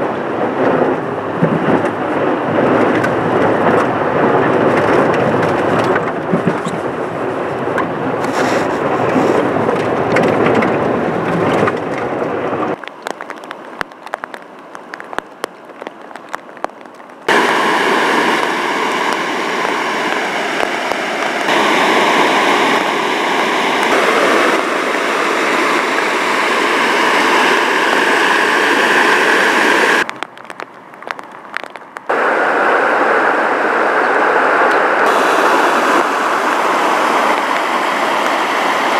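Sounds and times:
car tyres on wet road: 0.0s - 38.9s
rain noise: 0.0s - 38.9s
floodwater rushing: 0.1s - 38.9s
crackling: 12.7s - 32.4s.

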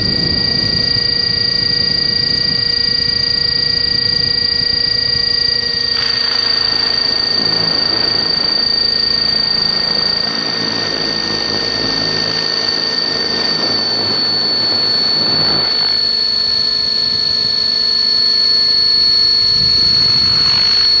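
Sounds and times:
high-pitched motor whine: 0.0s - 21.0s
rotors whooshing: 6.0s - 16.0s.

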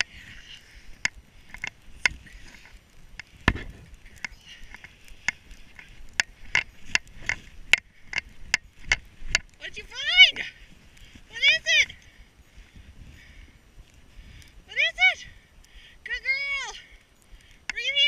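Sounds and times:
footsteps crunching in snow: 0.0s - 13.2s.

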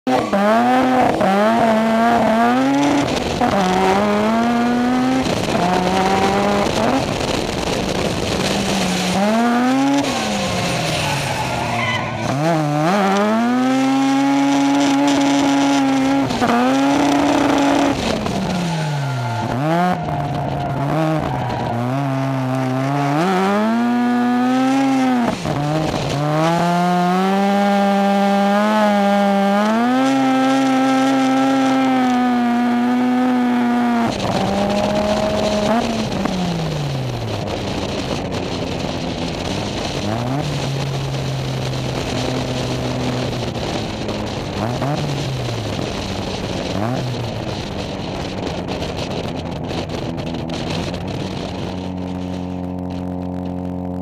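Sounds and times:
car engines revving hard: 0.0s - 54.0s
tire squeal: 0.1s - 23.9s.

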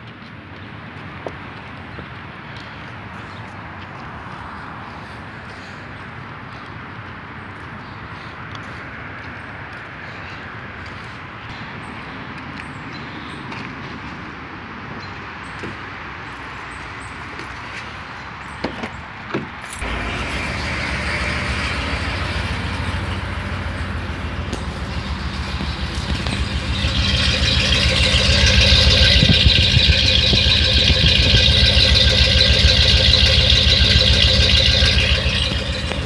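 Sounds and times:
truck engine starting and running: 19.7s - 36.0s.

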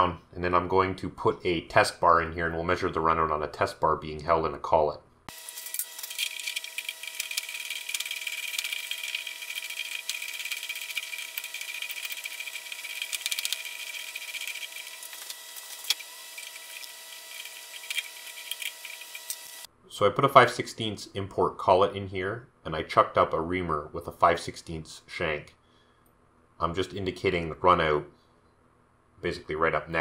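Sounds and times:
steady hum: 5.3s - 19.8s.

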